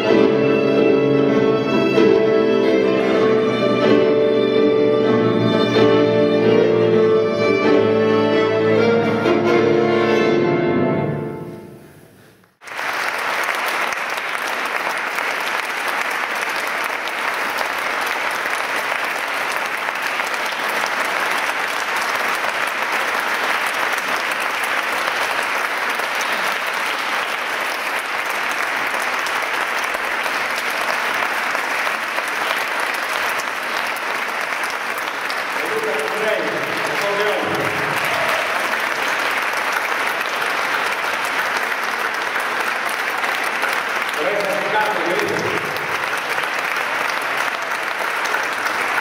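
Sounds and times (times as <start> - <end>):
accordion violin and piano trio: 0.0 - 11.5
audience applauding: 12.6 - 49.0.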